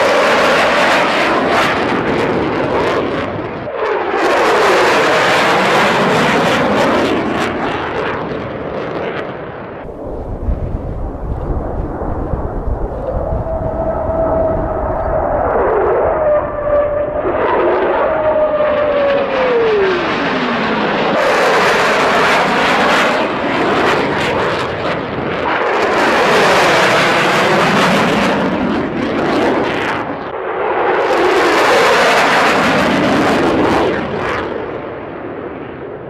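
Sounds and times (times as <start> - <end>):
jet engine whine: 0.0 - 36.0
jet rushing noise: 9.9 - 34.3.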